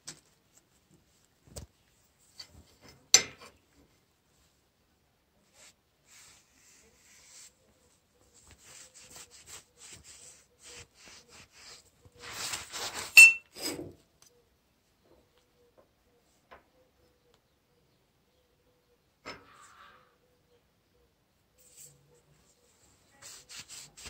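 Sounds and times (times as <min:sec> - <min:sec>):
sharp metallic clink: 0:13.2 - 0:13.5.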